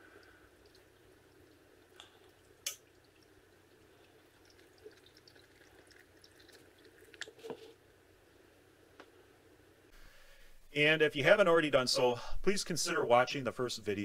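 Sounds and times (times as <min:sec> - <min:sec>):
oil pouring through funnel: 0:00.0 - 0:07.8.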